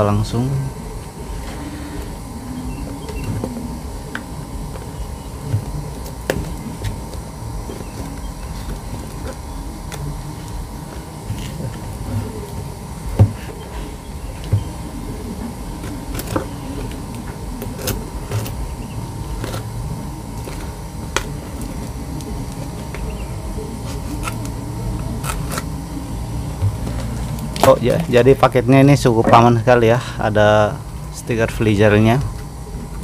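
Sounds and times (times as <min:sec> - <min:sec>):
steady low hum: 0:00.0 - 0:33.0
knife cutting packing tape: 0:23.8 - 0:25.8.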